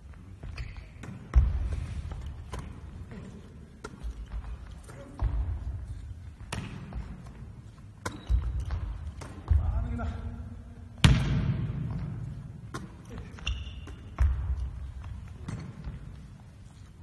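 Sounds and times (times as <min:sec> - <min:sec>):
footsteps on court: 0:00.0 - 0:10.3
volleyball bouncing on wooden floor: 0:00.4 - 0:03.2, 0:03.8 - 0:10.4, 0:11.0 - 0:16.4.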